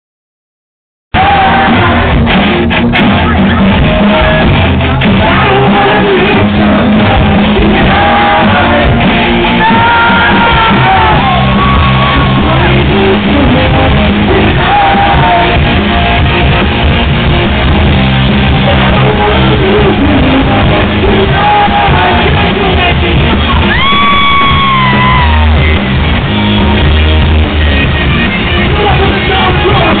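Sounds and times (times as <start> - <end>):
electric guitars: 1.2 - 30.0
person singing and shouting: 3.1 - 15.6.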